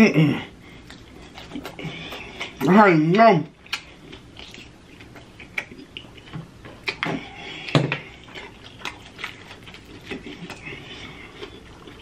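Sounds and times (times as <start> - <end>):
wet lip smacks and sucking: 3.6 - 6.2.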